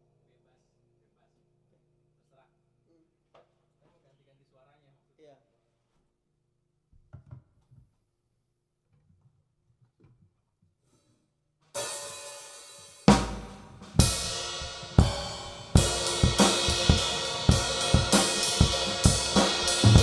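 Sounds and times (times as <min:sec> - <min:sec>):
cymbal wash: 0:11.8 - 0:20.0
fast drum beat with snare: 0:11.8 - 0:20.0.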